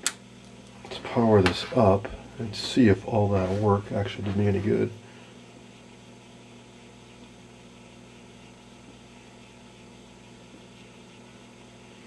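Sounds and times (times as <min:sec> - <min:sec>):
television mains hum: 0:00.0 - 0:12.0.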